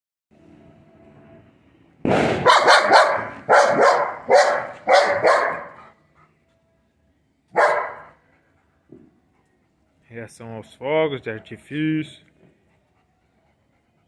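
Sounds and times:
dog barking loudly: 0:02.4 - 0:05.8, 0:07.5 - 0:08.2.

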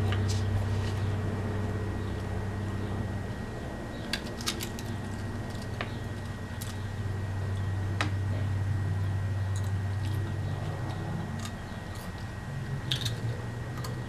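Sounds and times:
low hum: 0:00.0 - 0:14.0
potato chips being eaten: 0:12.9 - 0:14.0.

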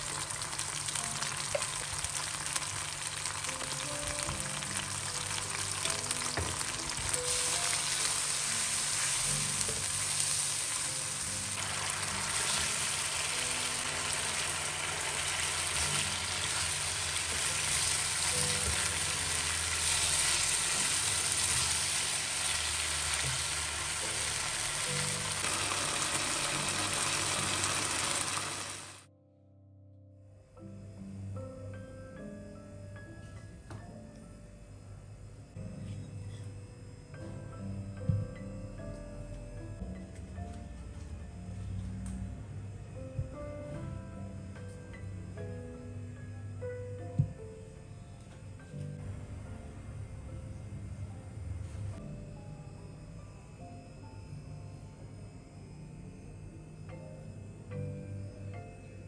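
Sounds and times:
sauce sizzling and bubbling: 0:00.0 - 0:29.1
soft background music: 0:00.0 - 0:59.0.

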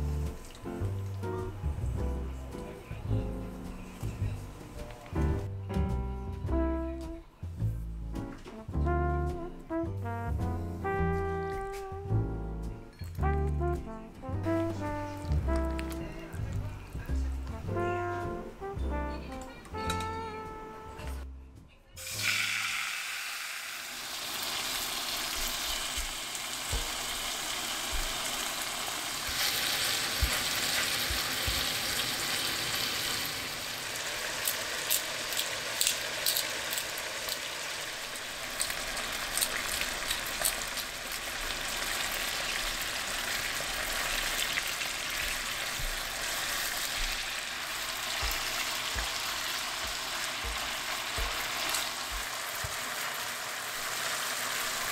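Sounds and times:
chicken sizzling in oil: 0:22.0 - 0:54.9
oil pops and crackles: 0:34.4 - 0:42.1.

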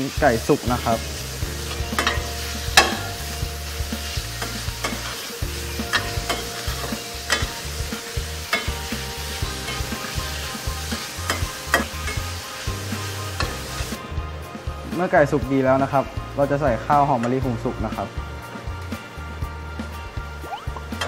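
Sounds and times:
food sizzling in hot oil: 0:00.0 - 0:21.0
metal spoon scraping pan: 0:04.0 - 0:07.6, 0:08.4 - 0:10.1.

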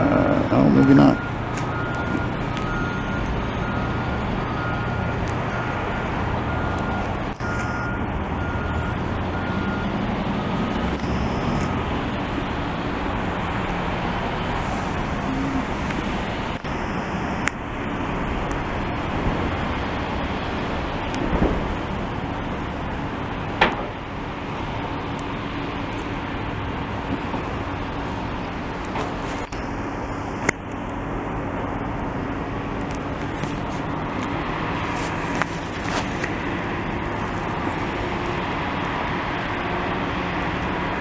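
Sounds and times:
backup alarm beeping: 0:00.3 - 0:11.9.

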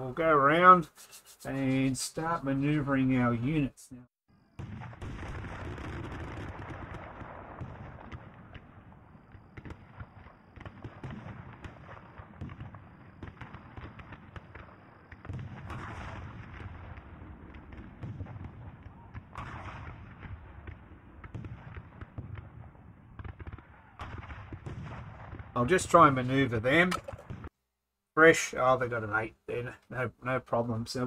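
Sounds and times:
cannon fire: 0:04.4 - 0:26.1, 0:26.8 - 0:27.5
gunfire volleys: 0:04.6 - 0:26.1, 0:26.8 - 0:27.5.

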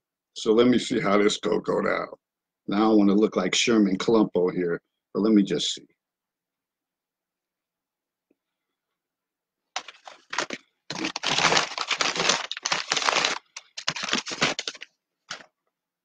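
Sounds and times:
crunching and chewing fried chicken: 0:09.8 - 0:15.4.

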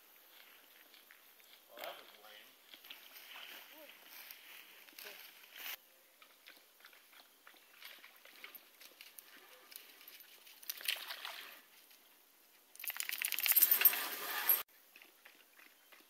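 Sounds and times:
dog splashing in water: 0:10.6 - 0:11.6.

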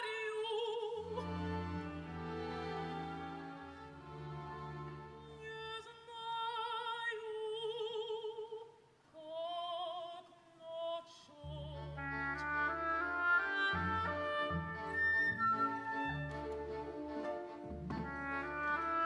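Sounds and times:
operatic soprano singing: 0:00.0 - 0:01.5, 0:05.2 - 0:12.3
orchestra playing: 0:01.2 - 0:05.3, 0:11.8 - 0:19.0.

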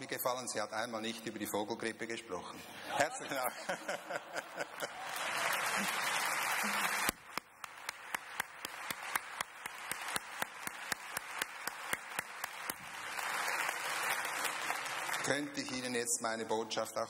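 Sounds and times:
audience clapping in unison: 0:04.4 - 0:16.0
scattered applause: 0:04.6 - 0:15.9.

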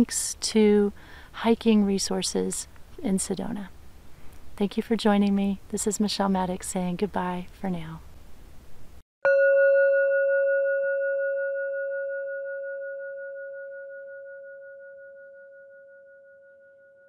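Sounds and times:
singing bowl ringing: 0:09.3 - 0:17.0.

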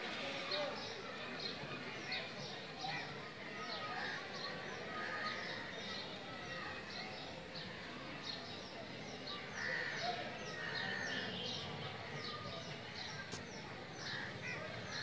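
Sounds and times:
low background noise: 0:00.0 - 0:15.0.

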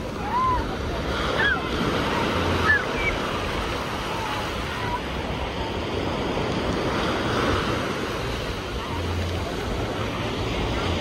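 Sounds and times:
ocean surf breaking: 0:00.0 - 0:11.0.

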